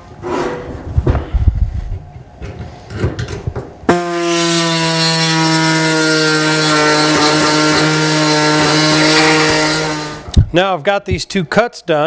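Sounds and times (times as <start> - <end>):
pneumatic saw buzzing: 3.9 - 10.4.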